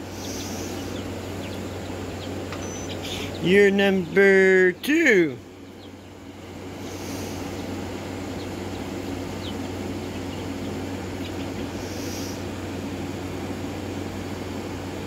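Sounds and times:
bird chirps: 0.0s - 4.8s, 5.5s - 12.4s
machine hum and whirr: 0.0s - 15.0s.

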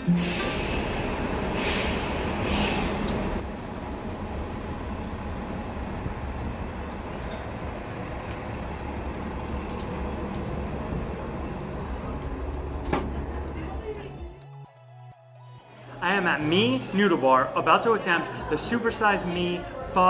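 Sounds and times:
city traffic rumble: 0.0s - 14.6s.

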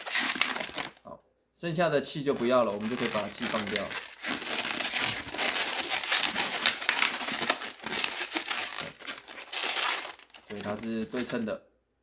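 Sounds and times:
balloons rubbing and squeaking: 0.0s - 1.0s, 2.3s - 11.4s.

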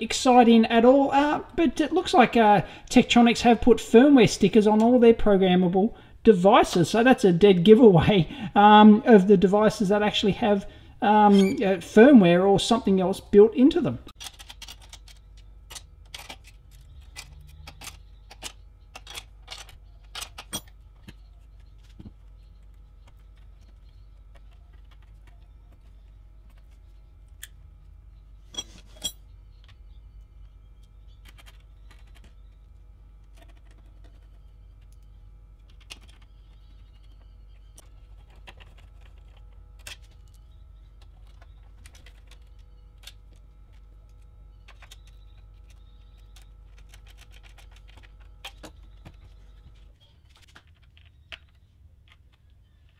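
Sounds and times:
faint steady hum: 0.0s - 52.9s.

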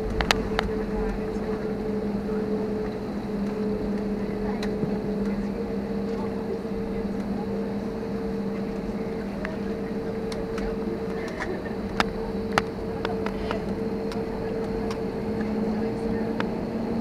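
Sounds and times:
airliner engine hum in cabin: 0.0s - 17.0s
sharp clicks and rattles: 8.8s - 16.6s.

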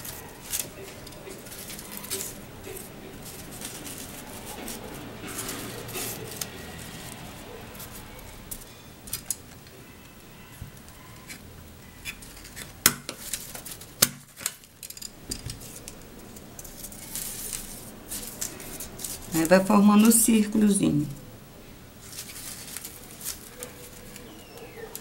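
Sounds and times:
paper strips rustling: 0.0s - 21.2s, 21.9s - 25.0s
hand stapler clicks: 12.5s - 15.6s.

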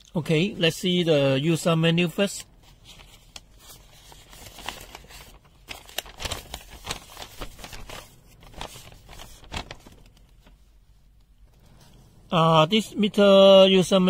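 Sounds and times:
paper crinkling and rustling: 2.6s - 12.0s.

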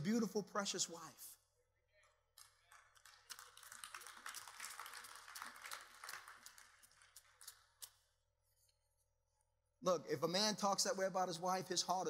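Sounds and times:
faint applause: 2.4s - 7.4s.

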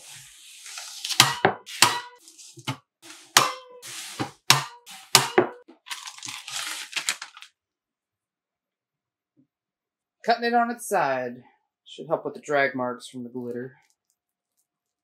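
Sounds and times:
paper crinkling: 5.8s - 7.6s, 13.8s - 15.0s.

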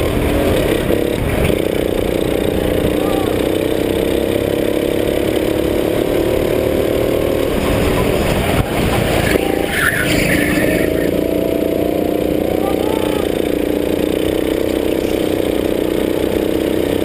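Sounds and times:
go-kart engine racing: 0.0s - 17.0s
brief high-pitched noise: 9.2s - 11.2s.

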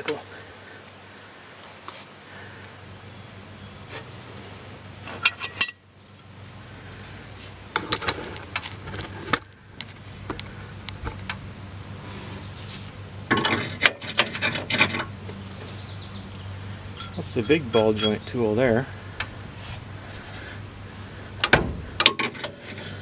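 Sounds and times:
tools clinking and scraping metal: 5.1s - 5.8s, 13.3s - 15.1s, 16.9s - 18.6s, 22.0s - 23.0s.

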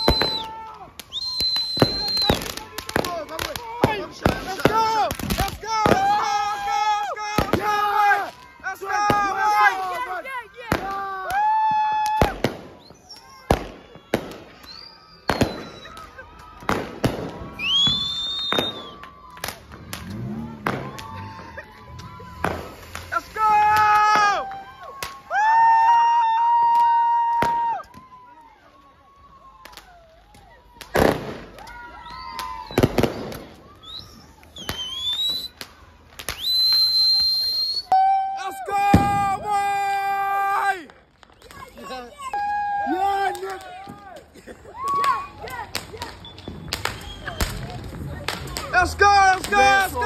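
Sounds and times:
high rising firework whistle: 0.0s - 3.2s, 10.8s - 28.1s, 30.8s - 39.7s, 44.8s - 50.0s
firecrackers banging: 0.0s - 28.1s, 29.6s - 38.0s, 38.7s - 50.0s
steady high-pitched whistle: 1.1s - 2.5s, 12.8s - 16.0s, 17.6s - 19.2s, 33.8s - 35.6s, 36.4s - 38.0s.

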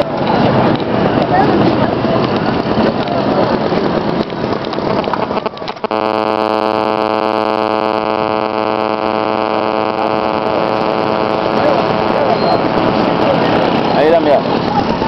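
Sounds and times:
busy street noise: 0.0s - 5.9s, 8.4s - 15.0s
steady hum with overtones: 4.7s - 15.0s.

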